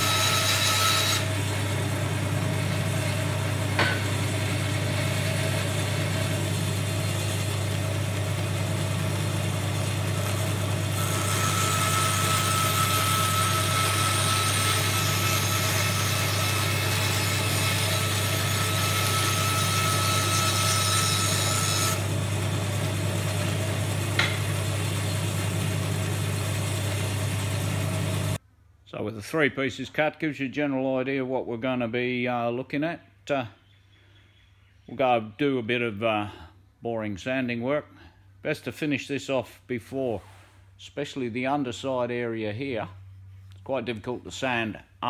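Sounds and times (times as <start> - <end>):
bandsaw running: 0.0 - 28.4
saw blade cutting wood: 0.0 - 28.4.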